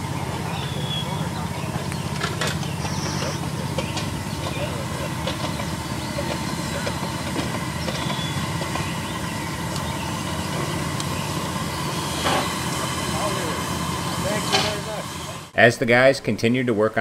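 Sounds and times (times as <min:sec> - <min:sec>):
steam locomotive hissing: 0:00.0 - 0:15.6.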